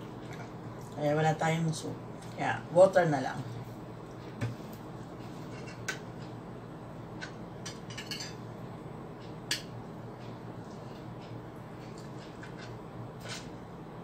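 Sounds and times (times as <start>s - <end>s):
steady low hum: 0.0s - 14.0s
cutlery clinking on a plate: 7.2s - 8.4s.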